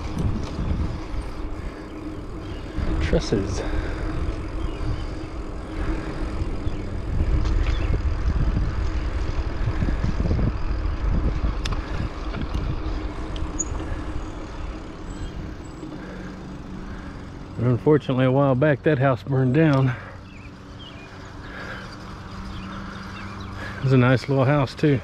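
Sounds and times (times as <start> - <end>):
wind on microphone: 0.0 - 13.9
bicycle tyres on asphalt: 0.0 - 25.0.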